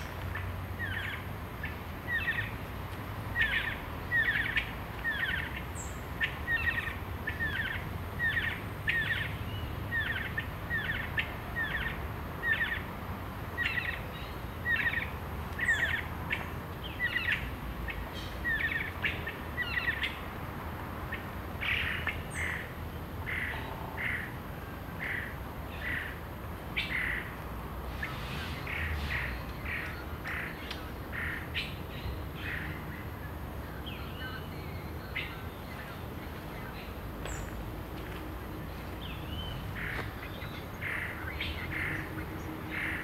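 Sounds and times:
birds calling with sharp notes: 0:00.0 - 0:20.4, 0:21.0 - 0:43.0.

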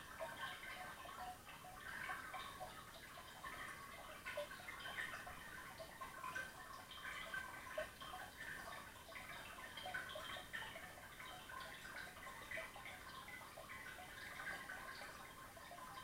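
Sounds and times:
underwater bubbles crackling: 0:00.0 - 0:16.0.

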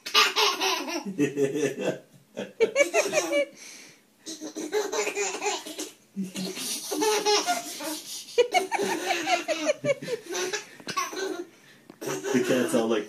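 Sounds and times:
laughter: 0:01.0 - 0:03.5, 0:08.4 - 0:10.4.

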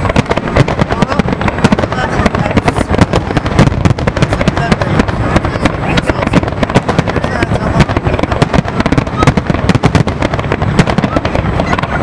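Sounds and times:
fireworks bangs and cracks: 0:00.0 - 0:12.0.

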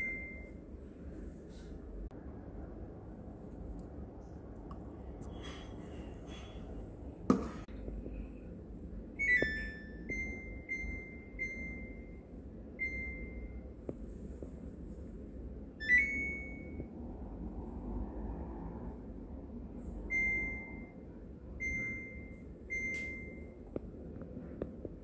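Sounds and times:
washing machine chime: 0:00.0 - 0:00.7, 0:09.2 - 0:13.7, 0:15.8 - 0:16.9, 0:20.1 - 0:21.0, 0:21.6 - 0:23.6
washing machine beeps: 0:00.0 - 0:00.8, 0:09.1 - 0:13.8, 0:15.7 - 0:17.0, 0:20.0 - 0:23.6.

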